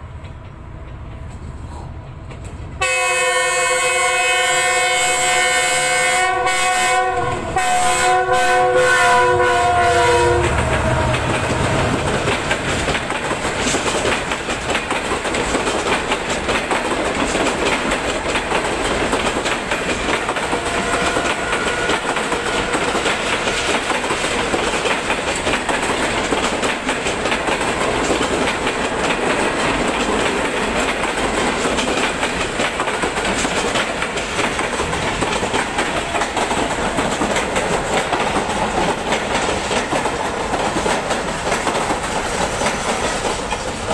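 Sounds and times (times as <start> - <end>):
train wheels clattering on rails: 0.0 - 43.9
locomotive multi-tone horn: 2.8 - 11.9, 20.5 - 23.9.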